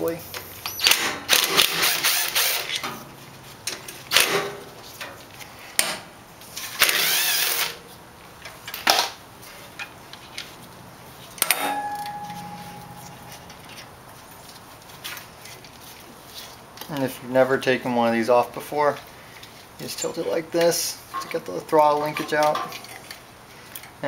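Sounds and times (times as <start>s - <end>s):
metal part clinking and ringing: 11.4s - 13.9s.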